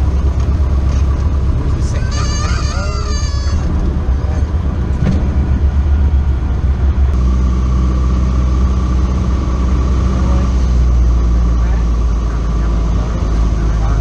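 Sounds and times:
propeller airplane engine droning: 0.0s - 14.0s
uneven runway rumble: 0.0s - 14.0s.

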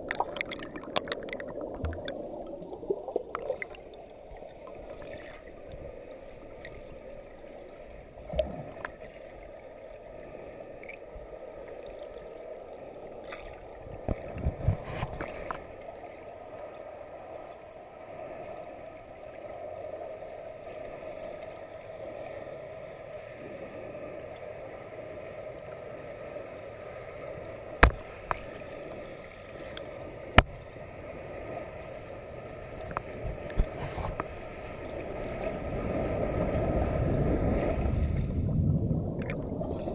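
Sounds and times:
rushing water heard underwater: 0.0s - 39.9s
sharp knocks: 27.8s - 28.0s.

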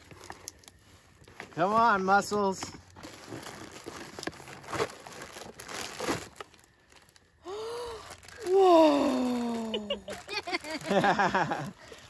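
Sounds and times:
plastic bag crinkling: 0.0s - 12.0s
cardboard box being opened: 3.1s - 6.6s
person saying ooh: 8.4s - 10.1s.

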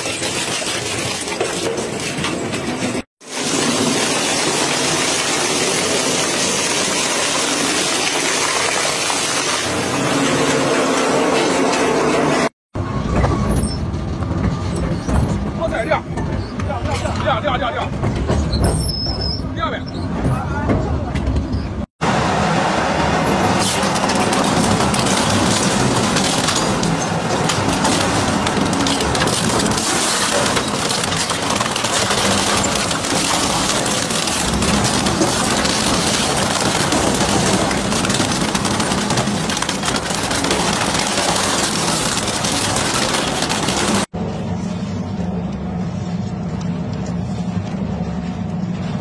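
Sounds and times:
shredder grinding metal and plastic: 0.0s - 12.5s, 22.4s - 44.2s
shredder blades humming: 22.1s - 44.1s.

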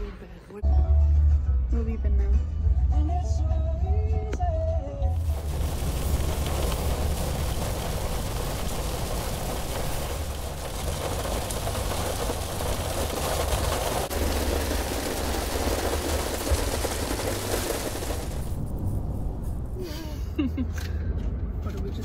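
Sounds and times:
road rumble in vehicle cabin: 4.2s - 22.0s
rushing hiss: 5.2s - 18.6s.

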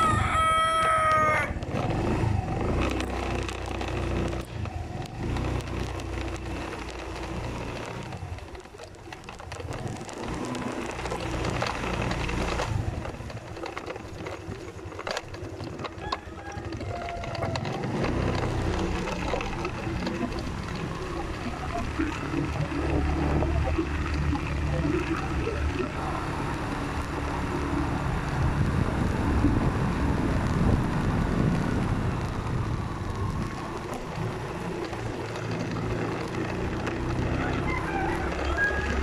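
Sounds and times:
rooster crowing: 0.0s - 1.6s, 15.9s - 17.7s, 37.4s - 39.0s
road and wind noise: 0.0s - 39.0s
vehicle engine running low: 0.0s - 39.0s.

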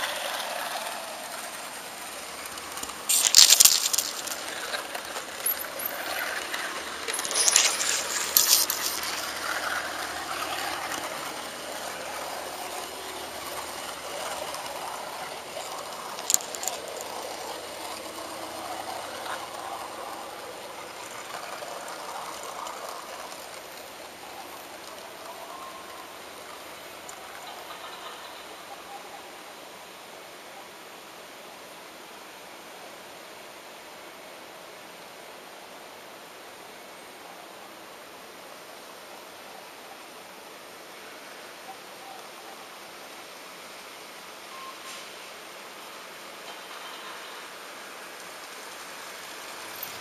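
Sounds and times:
model train wheels rattling on rails: 0.0s - 29.2s, 44.9s - 50.0s
wheels clicking over rail joints: 0.0s - 29.2s, 44.9s - 50.0s.

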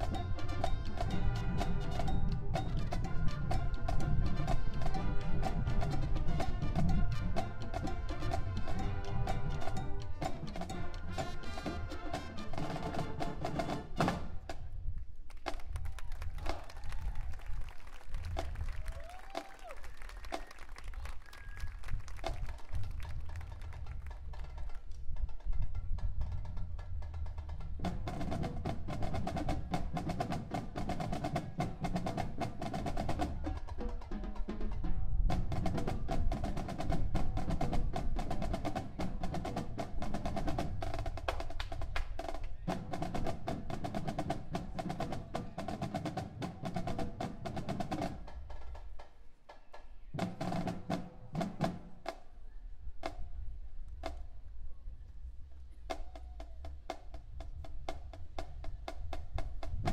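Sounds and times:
brass and woodwind chords: 0.0s - 14.2s
snare and drum strokes: 26.8s - 52.3s.

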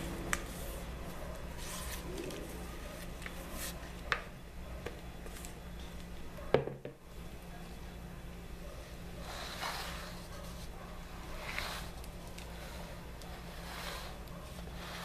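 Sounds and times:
spatula scraping batter: 9.2s - 15.0s.

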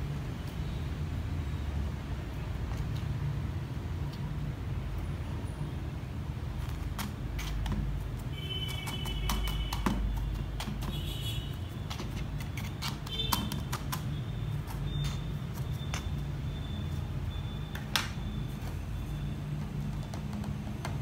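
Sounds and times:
clicks and taps handling plastic pot: 19.6s - 21.0s.

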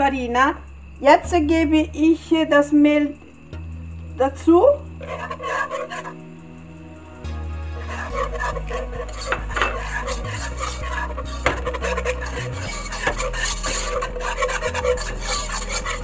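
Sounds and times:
background music with bass: 0.0s - 16.0s
whisk scraping and clicking in pot: 5.0s - 6.2s, 7.8s - 16.0s.

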